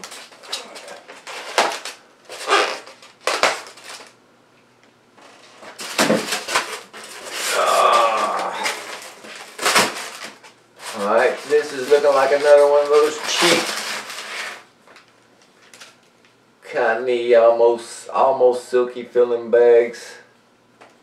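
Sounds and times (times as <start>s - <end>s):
knife slitting packing tape: 0.0s - 4.1s, 5.4s - 14.6s
foam squeaking on foam: 2.3s - 3.0s, 7.3s - 9.0s.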